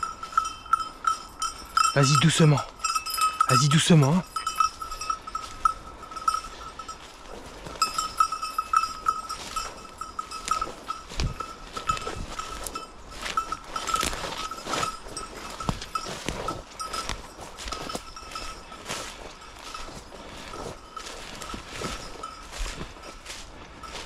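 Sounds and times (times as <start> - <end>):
dog collar bell ringing: 0.0 - 24.0
twigs and brush crackling: 6.8 - 24.0.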